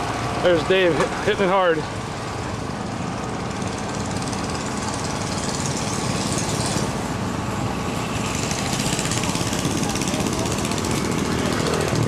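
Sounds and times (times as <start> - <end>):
motorcycle engine running: 2.3 - 12.0.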